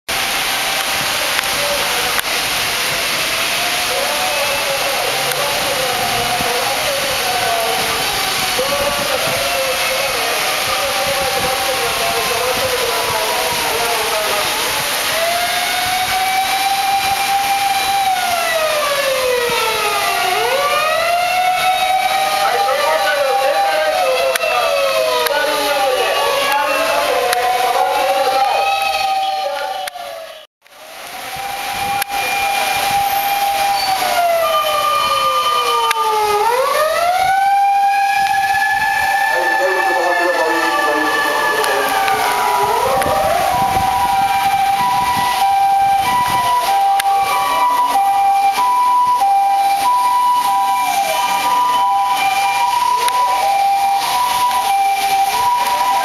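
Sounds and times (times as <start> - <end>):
wet traffic hiss: 0.1 - 28.6
sirens wailing: 0.1 - 56.0.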